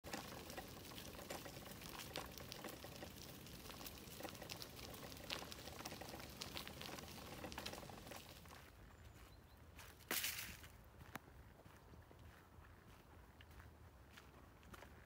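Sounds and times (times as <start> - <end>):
footsteps crunching on dirt path: 0.0 - 15.0
steady crackling hiss: 0.1 - 8.6.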